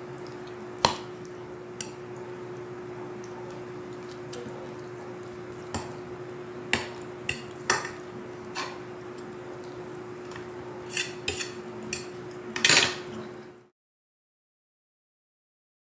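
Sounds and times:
cutlery clinking on a plate: 10.9 - 13.2.

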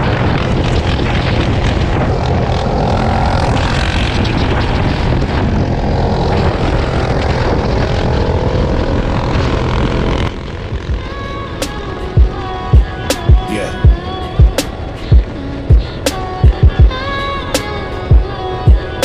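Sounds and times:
off-road vehicle engine: 0.8 - 11.6
music with heavy bass thumps: 12.2 - 15.8, 16.4 - 17.0.

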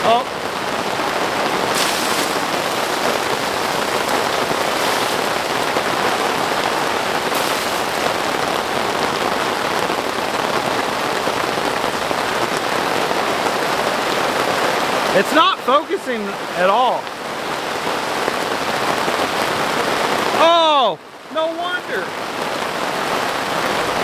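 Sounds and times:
heavy rain falling: 0.0 - 24.0.

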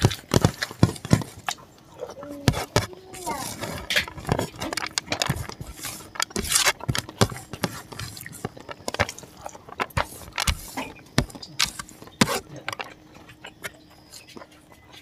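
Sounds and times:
fingers scraping rice on plate: 2.4 - 14.4.

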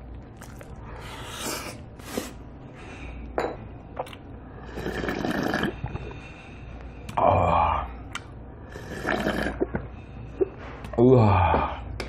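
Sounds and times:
person slurping soup: 4.6 - 6.2, 8.6 - 9.8.

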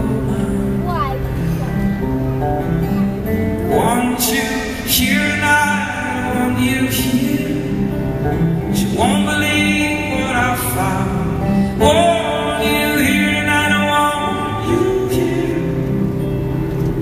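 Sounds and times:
acoustic guitar strumming: 0.0 - 17.0
man singing: 3.6 - 16.7.

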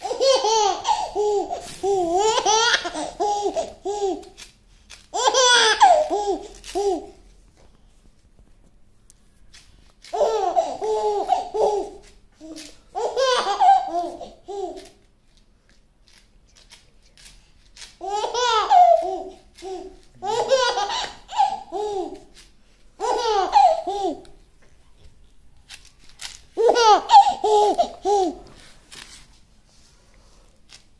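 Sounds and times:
baby laughing: 0.0 - 4.4, 5.1 - 7.2, 10.1 - 15.0, 18.0 - 22.4, 23.0 - 24.4, 26.6 - 28.5.

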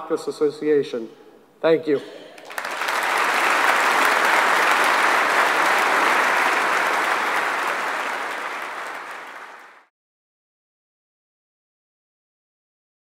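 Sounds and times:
audience applauding: 2.4 - 9.9.

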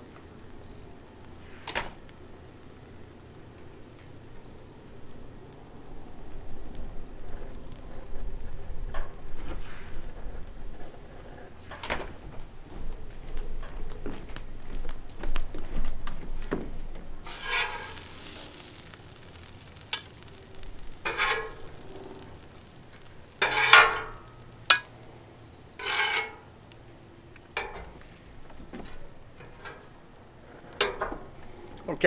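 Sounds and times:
metal spatula scraping griddle: 17.3 - 22.3, 23.4 - 24.9, 25.7 - 26.5.

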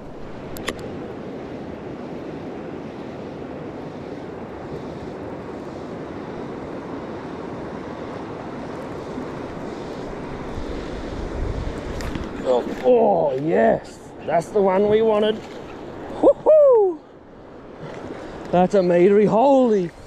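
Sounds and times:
steady rushing outdoor noise: 0.0 - 20.0
sharp click: 0.5 - 0.9.

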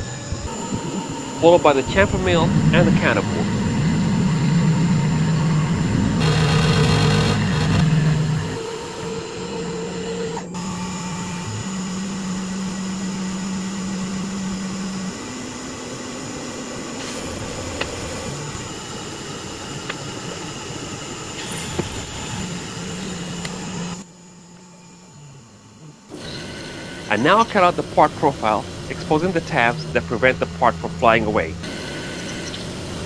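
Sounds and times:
milling machine whine: 0.0 - 33.0.

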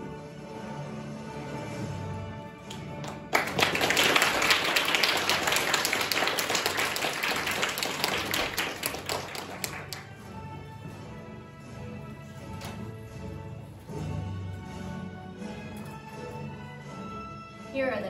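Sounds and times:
audience applauding: 2.7 - 10.4.

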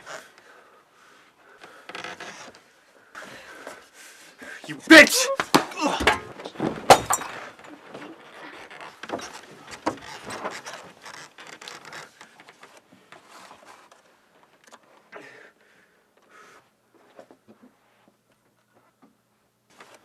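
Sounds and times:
clatter of knocks and shuffling: 5.4 - 14.6.

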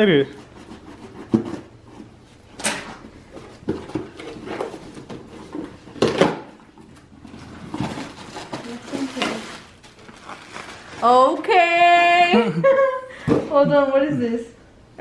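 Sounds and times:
gift wrapping rustling: 6.6 - 11.7.

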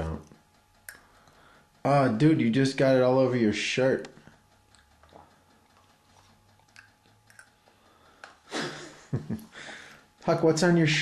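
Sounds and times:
child eating sounds: 4.7 - 7.6.

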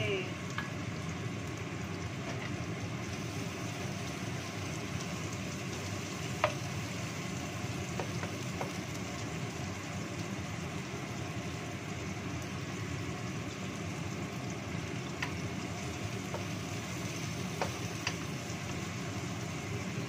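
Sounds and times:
food sizzling in a wok: 0.0 - 20.0
spatula knocking on a wok: 6.4 - 6.6, 7.9 - 8.8, 17.6 - 18.2.

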